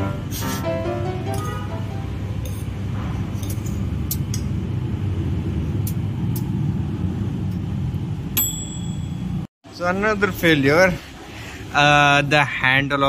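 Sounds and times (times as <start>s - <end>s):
microwave oven humming: 0.0s - 9.5s.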